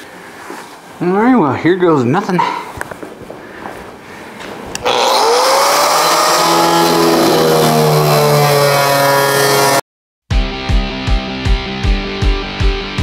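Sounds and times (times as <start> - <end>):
angle grinder cutting steel: 4.8 - 9.8.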